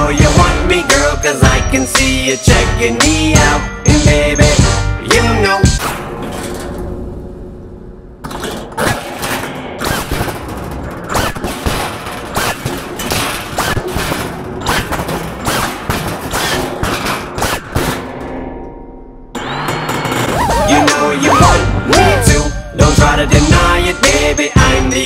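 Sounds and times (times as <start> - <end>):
loud sharp hits and bangs: 8.4 - 18.4.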